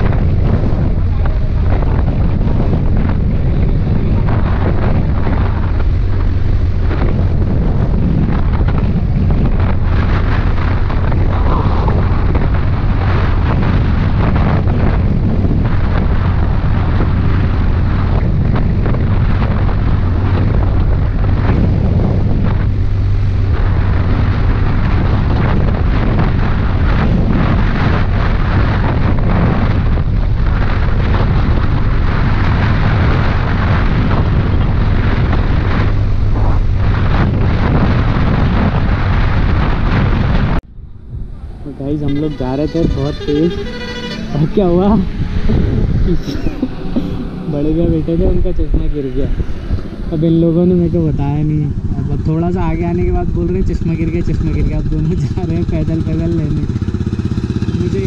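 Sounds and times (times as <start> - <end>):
motorcycle engine drone: 0.0 - 58.0
wind buffeting microphone: 0.0 - 58.0.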